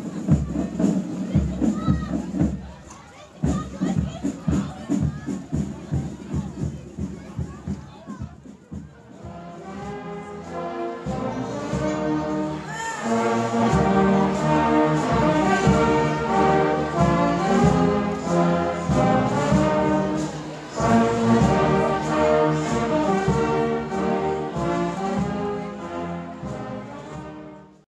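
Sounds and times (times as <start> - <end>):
snare drum strokes: 0.0 - 27.5
brass band playing: 9.0 - 27.8.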